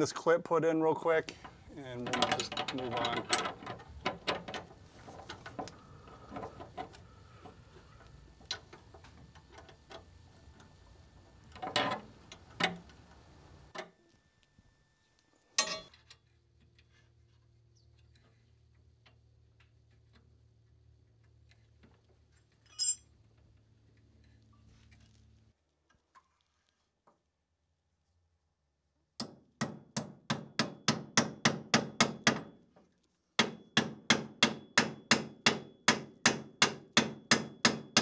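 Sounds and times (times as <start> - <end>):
wrenches clinking on metal fitting: 1.8 - 6.9, 11.5 - 12.8, 15.6 - 16.0, 22.7 - 23.1
hammer knocking metal clip: 15.6 - 15.9.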